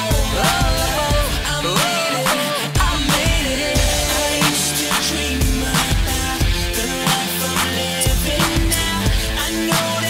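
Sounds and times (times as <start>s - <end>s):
deep sustained bass notes: 0.0s - 1.8s
steady drum beat: 0.0s - 10.0s.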